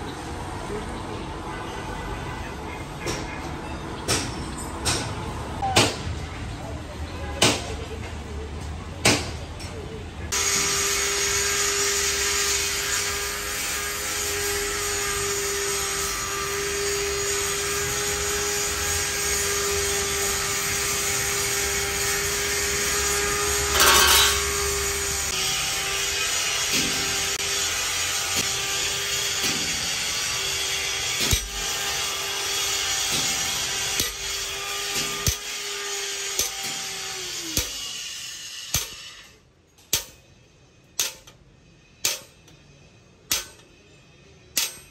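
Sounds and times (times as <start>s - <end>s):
power tool grinding steel: 10.3s - 40.2s.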